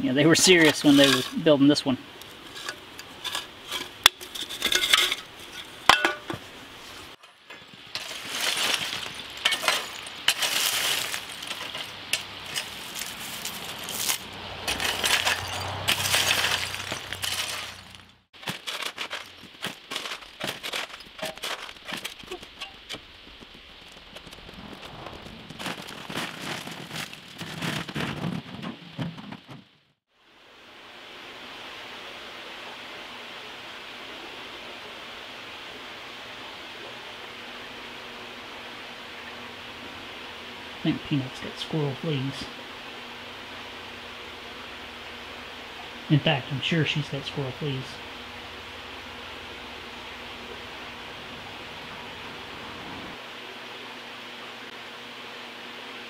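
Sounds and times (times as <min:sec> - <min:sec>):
rake scraping through rubble: 0:00.2 - 0:01.6, 0:02.2 - 0:28.8
aluminium cans clinking: 0:00.4 - 0:01.4, 0:02.4 - 0:06.5, 0:07.2 - 0:22.8
concrete chunks clattering: 0:00.4 - 0:01.5, 0:02.5 - 0:06.4, 0:07.2 - 0:24.6.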